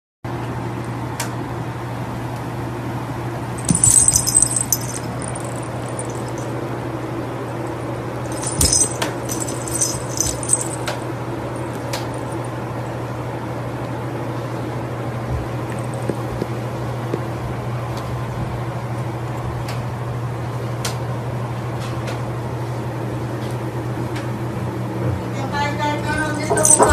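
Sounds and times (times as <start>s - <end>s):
steady low hum: 3.2s - 18.9s
cat collar bell jingling: 3.6s - 6.5s, 8.3s - 11.0s, 26.1s - 26.9s.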